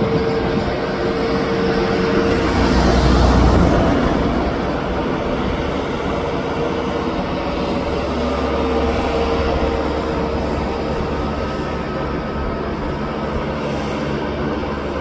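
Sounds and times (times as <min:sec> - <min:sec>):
steady whine: 0:00.0 - 0:15.0
tractor diesel engine running: 0:00.0 - 0:15.0.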